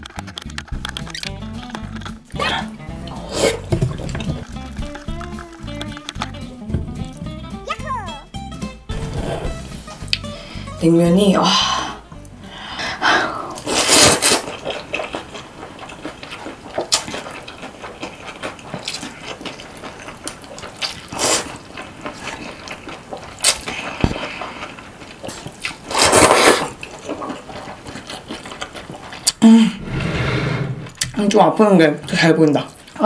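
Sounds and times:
wet clicks and crackles: 0.0s - 2.4s, 3.9s - 6.4s
slurping and chewing noodles: 0.7s - 6.4s, 13.0s - 31.2s.

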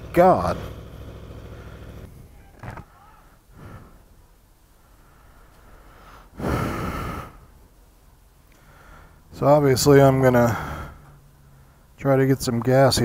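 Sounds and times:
motorcycle engine idling: 0.0s - 4.5s.

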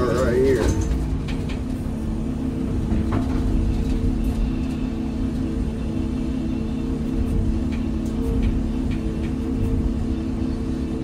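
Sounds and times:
excavator diesel engine running: 0.0s - 11.0s.

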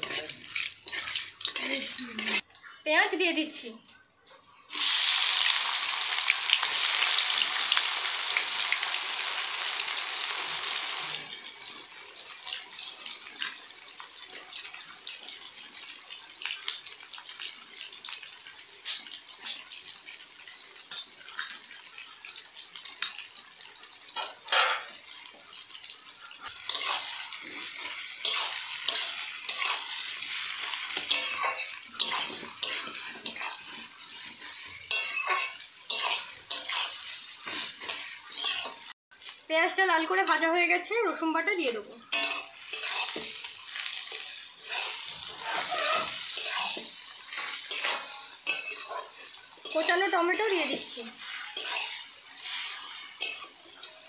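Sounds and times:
onions sizzling in hot oil: 0.0s - 2.4s, 4.7s - 54.0s
spoon stirring against pan: 0.0s - 2.5s, 11.4s - 39.4s, 42.0s - 54.0s.

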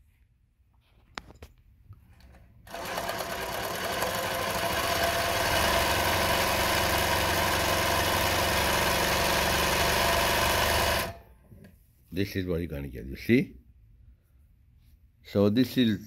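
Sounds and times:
sewing machine sewing fabric: 2.7s - 11.2s.

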